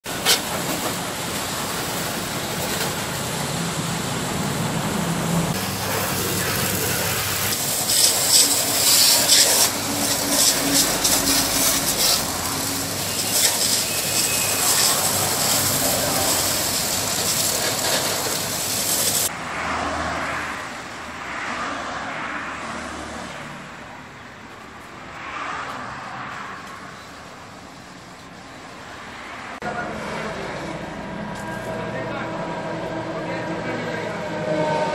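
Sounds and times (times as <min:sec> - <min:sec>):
water jet hissing on car: 0:00.0 - 0:21.3.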